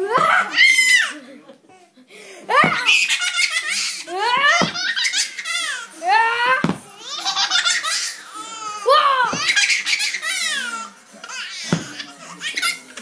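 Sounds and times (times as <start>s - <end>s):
baby laughing: 2.5s - 5.9s, 6.9s - 8.7s, 9.3s - 13.0s.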